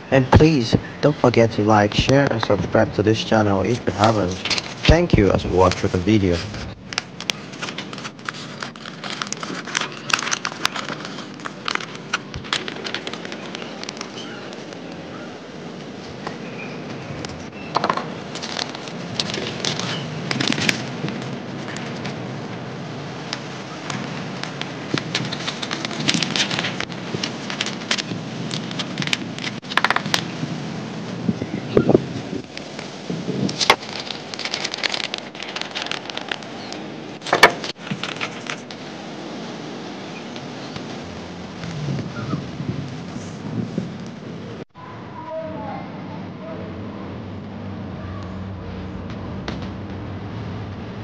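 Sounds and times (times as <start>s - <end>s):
steady background hiss: 0.0s - 51.0s
paper rustling and crinkling: 3.6s - 30.4s, 31.9s - 42.0s.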